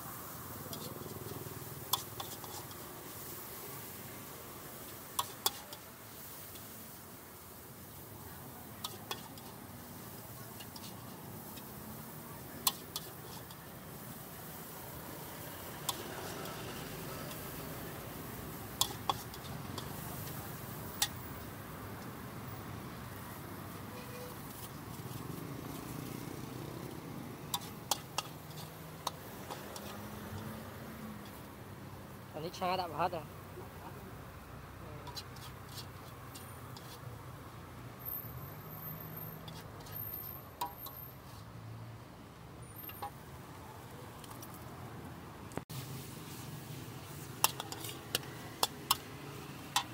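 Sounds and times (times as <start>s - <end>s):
spatula stirring noodles in wok: 0.0s - 33.5s, 34.2s - 44.7s, 45.7s - 49.9s
steady background hiss: 0.0s - 38.0s, 41.4s - 49.9s
spatula clinking on wok: 39.4s - 41.1s.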